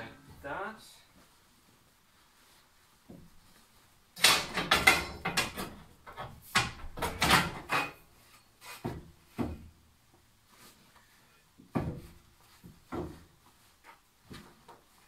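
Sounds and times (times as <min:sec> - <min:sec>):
fabric rustling and crinkling: 0:01.1 - 0:04.1.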